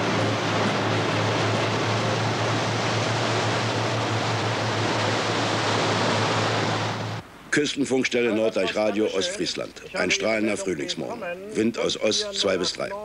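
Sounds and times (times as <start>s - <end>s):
low boat engine drone: 0.0s - 7.5s
water and wind rushing: 0.0s - 13.0s.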